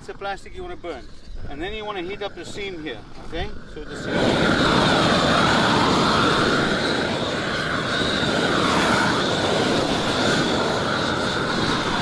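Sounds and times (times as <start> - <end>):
roofing torch flame rushing: 0.5 - 12.0.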